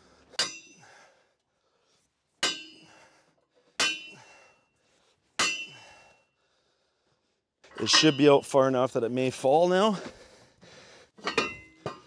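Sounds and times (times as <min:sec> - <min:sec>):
sledgehammer striking steel: 0:00.4 - 0:00.8, 0:02.4 - 0:02.9, 0:03.8 - 0:04.2, 0:05.4 - 0:05.8.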